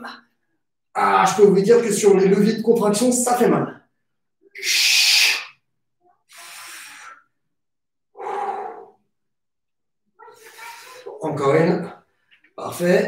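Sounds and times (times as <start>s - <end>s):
man breathing hard: 8.1s - 9.1s.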